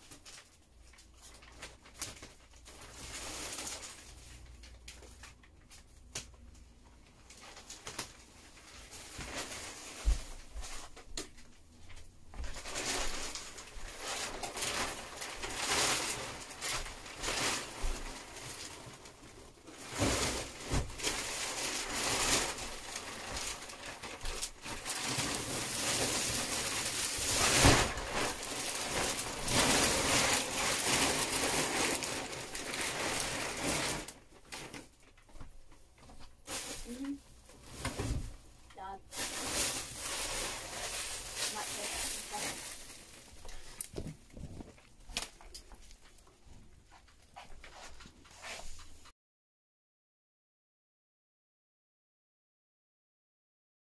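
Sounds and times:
plastic film rustling and crinkling: 0:00.0 - 0:49.1.

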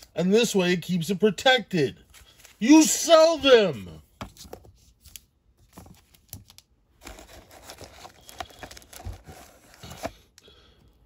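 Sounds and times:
packing paper rustling: 0:04.4 - 0:10.3.

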